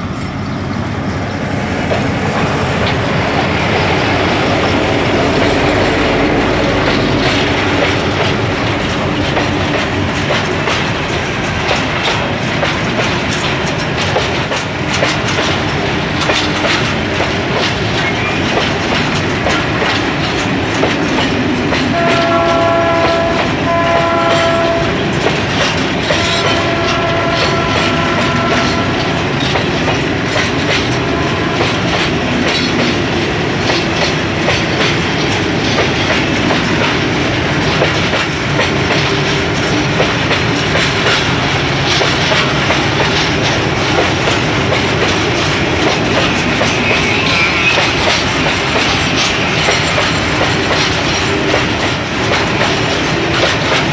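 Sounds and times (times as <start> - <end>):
freight train rumbling past: 0.0 - 53.9
wheels clicking over rail joints: 1.4 - 53.9
locomotive horn blasts: 21.9 - 25.0, 26.0 - 29.2, 31.0 - 31.8.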